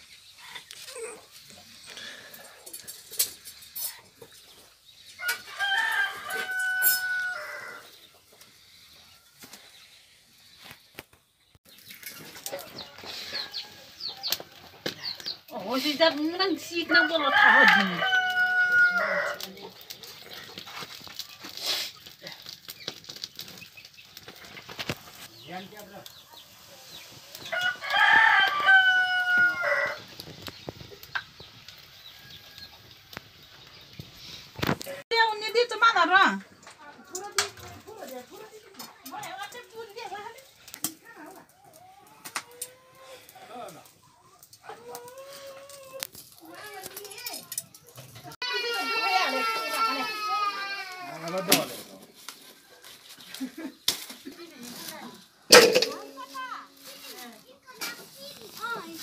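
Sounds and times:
rooster crowing: 0:05.2 - 0:07.9, 0:16.9 - 0:19.5, 0:27.4 - 0:30.1
rustling: 0:49.1 - 0:59.0.

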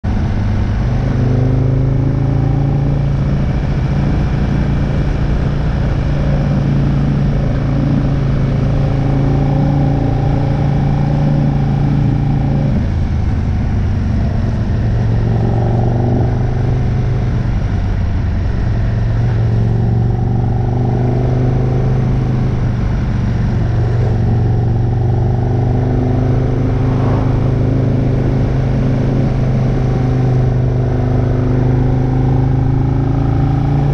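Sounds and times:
motorcycle engine cruising: 0:00.0 - 0:33.9.

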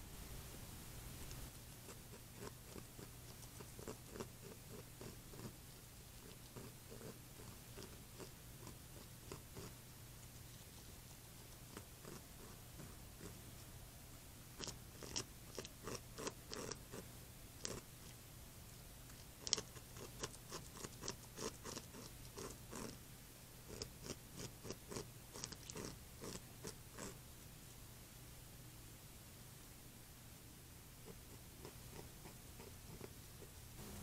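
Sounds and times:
beaver gnawing wood: 0:01.6 - 0:09.8, 0:14.5 - 0:18.2, 0:19.1 - 0:23.0, 0:23.7 - 0:27.2, 0:31.0 - 0:33.7.

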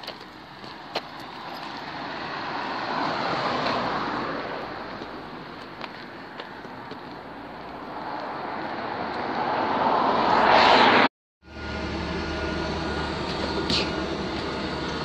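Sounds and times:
bus engine hum: 0:00.0 - 0:09.8, 0:11.4 - 0:15.0
road noise of approaching vehicle: 0:00.0 - 0:15.0.

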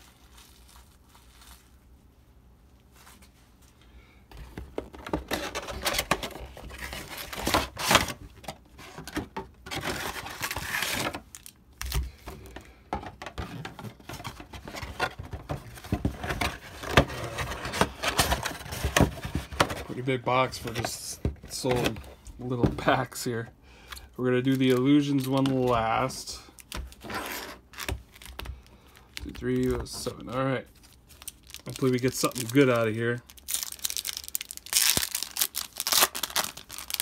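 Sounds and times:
foil card packs rustling: 0:04.4 - 0:37.0
cardboard scraping and tearing: 0:14.3 - 0:20.0.

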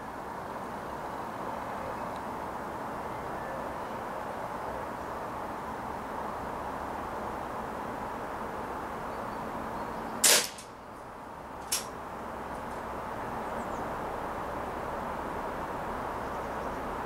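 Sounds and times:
air pistol shot crack: 0:10.2 - 0:10.7.

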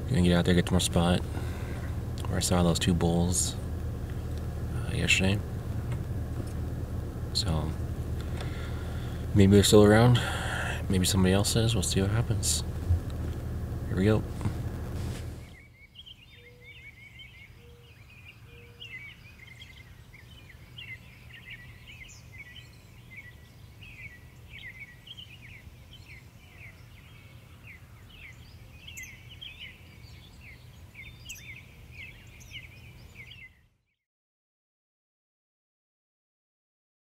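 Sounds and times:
low steady rumble: 0:00.0 - 0:15.7
small birds chirping: 0:00.0 - 0:33.9.

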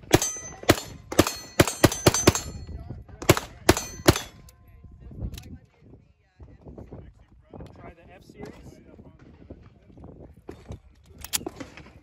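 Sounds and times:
pistol shots: 0:00.0 - 0:02.6, 0:03.2 - 0:04.5.

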